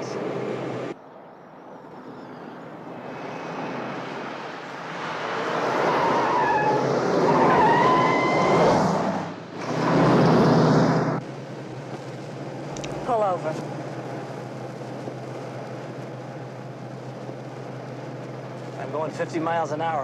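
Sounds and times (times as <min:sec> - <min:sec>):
vehicle rushing past: 0:02.0 - 0:11.2
van engine running hard: 0:09.3 - 0:20.0.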